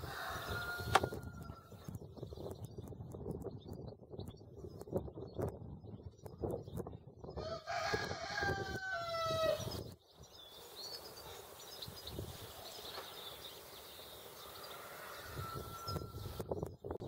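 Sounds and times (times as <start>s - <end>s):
rooster crowing: 0.0s - 1.7s, 7.4s - 9.8s, 14.3s - 16.4s
faint high bird chirps: 8.6s - 17.0s.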